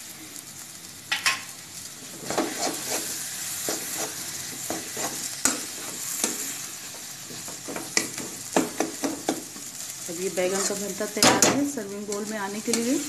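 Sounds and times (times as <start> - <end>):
mixture sizzling in oil: 0.0 - 13.0
metal spatula scraping pan: 2.2 - 6.7.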